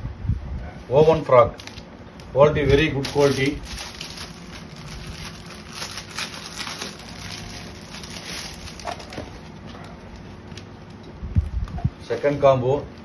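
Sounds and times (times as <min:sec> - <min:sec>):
fabric rustling: 0:03.0 - 0:10.4.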